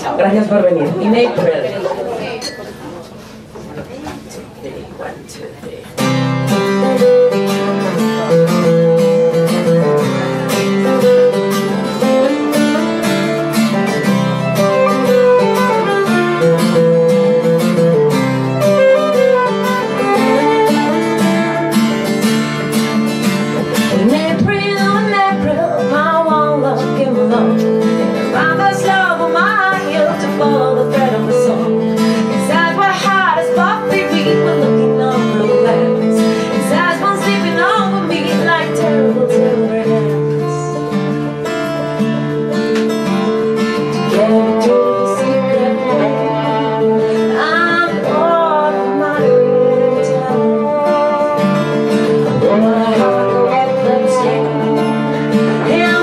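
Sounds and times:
acoustic guitars playing: 0.0s - 56.0s
woman singing: 18.6s - 22.1s, 23.9s - 41.2s, 43.7s - 56.0s.

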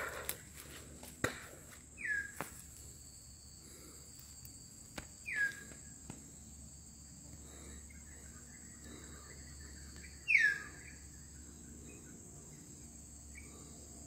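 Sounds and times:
insects droning: 0.0s - 14.0s
bird whistling: 2.0s - 2.3s, 5.2s - 5.6s, 10.2s - 11.0s.

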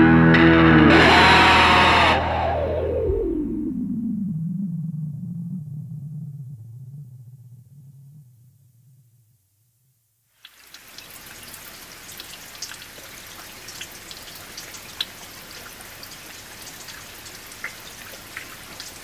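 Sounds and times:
raindrops ticking: 10.4s - 19.0s
steady rain hiss: 10.4s - 19.0s.

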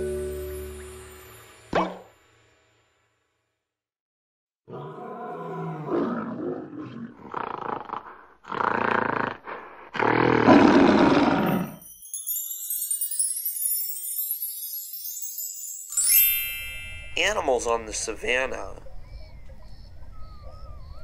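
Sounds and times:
bright rising chime: 0.0s - 1.7s, 11.5s - 18.6s
wild animal roars: 4.7s - 11.8s.

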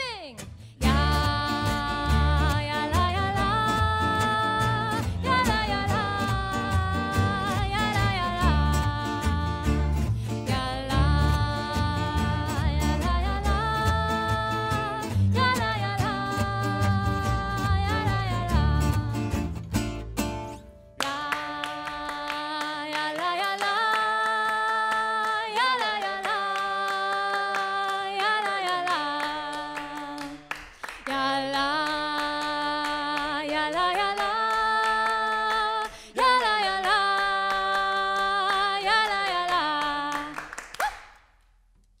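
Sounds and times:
guitars and double bass: 0.2s - 21.0s
voices singing a cappella: 0.8s - 19.3s, 21.0s - 30.5s, 31.1s - 40.4s
hand claps: 21.0s - 31.2s, 31.8s - 41.4s.

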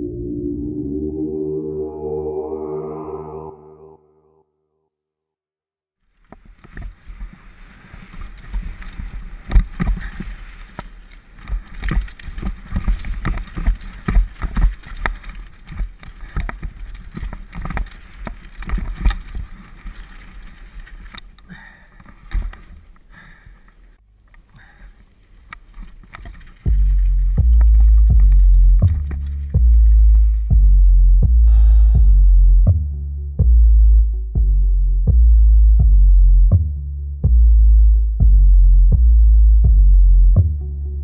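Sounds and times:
bike knocking over rocks: 6.2s - 21.4s
wind and tyre noise: 6.2s - 23.1s.

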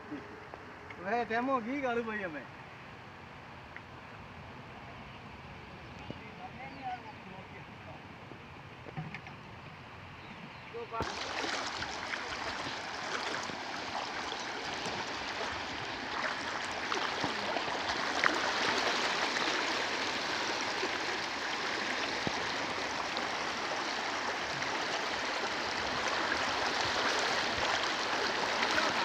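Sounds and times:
floodwater rushing over a ledge: 11.0s - 29.0s.

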